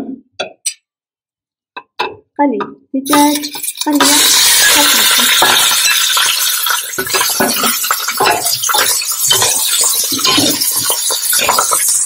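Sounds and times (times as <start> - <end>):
chicken sizzling in hot oil: 3.1 - 12.0
metal spoon knocking on pot: 4.8 - 12.0.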